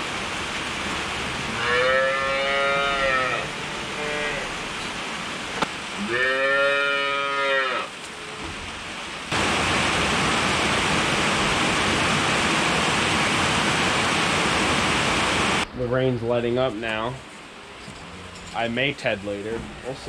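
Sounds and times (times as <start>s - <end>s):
rain on a metal roof: 0.0s - 20.0s
cow mooing: 1.5s - 4.6s, 6.0s - 8.4s.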